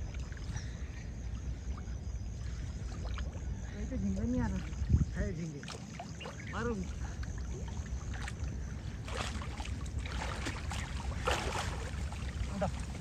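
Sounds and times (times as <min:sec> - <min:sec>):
water sloshing and splashing: 0:00.0 - 0:13.0.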